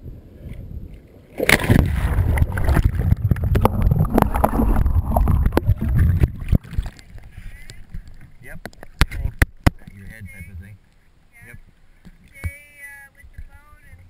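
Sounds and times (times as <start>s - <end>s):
muffled underwater churning: 0.3s - 12.4s
water splash: 1.3s - 10.0s.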